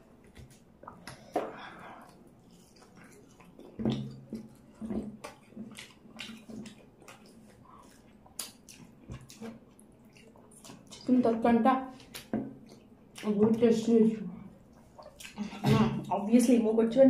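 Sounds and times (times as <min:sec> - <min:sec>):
chewing and lip smacking: 0:00.0 - 0:11.1, 0:11.9 - 0:13.4, 0:14.5 - 0:16.2
fingers squishing through food: 0:00.1 - 0:13.8.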